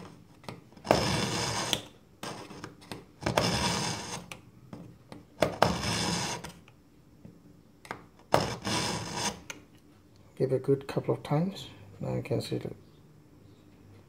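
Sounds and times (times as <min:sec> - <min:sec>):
knife grinding in sharpener: 0:00.9 - 0:04.4, 0:05.4 - 0:06.6, 0:08.4 - 0:09.6.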